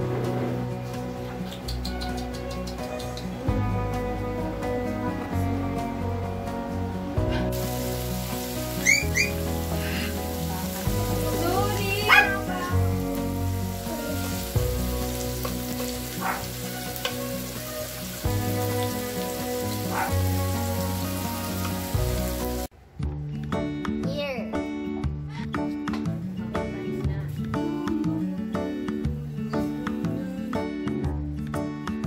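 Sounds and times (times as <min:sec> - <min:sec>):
background music of sustained chords: 0:03.4 - 0:22.7
pork sizzling on grill pan: 0:07.5 - 0:22.7
puppy yelping: 0:08.8 - 0:09.5, 0:12.1 - 0:12.4.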